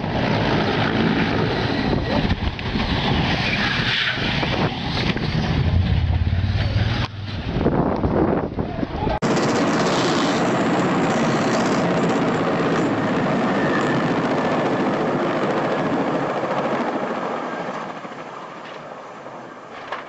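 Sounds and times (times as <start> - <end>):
helicopter rotor and engines whirring: 0.0 - 8.6, 9.2 - 19.7.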